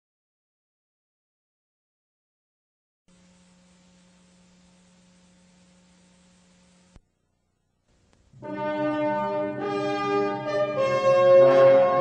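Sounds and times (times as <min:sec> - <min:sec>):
brass ensemble playing chords: 0:08.4 - 0:12.0.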